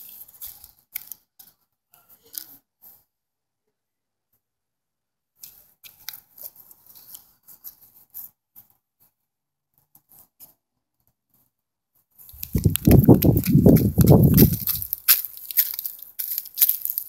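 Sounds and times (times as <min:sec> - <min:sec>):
branches brushing microphone: 0:12.3 - 0:17.0
rustling through dry leaves: 0:12.3 - 0:17.0.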